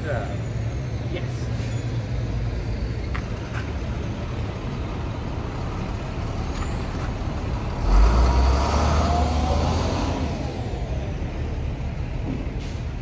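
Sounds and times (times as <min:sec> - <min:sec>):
heavy vehicle engine rumble: 0:00.0 - 0:13.0.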